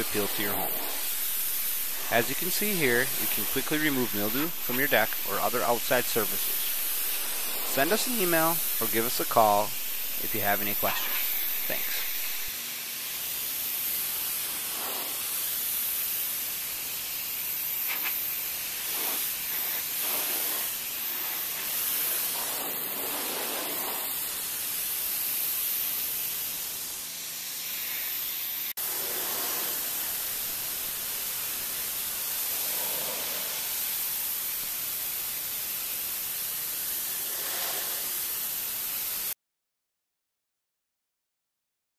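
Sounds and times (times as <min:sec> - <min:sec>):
pressure washer spray hissing: 0:00.0 - 0:39.4.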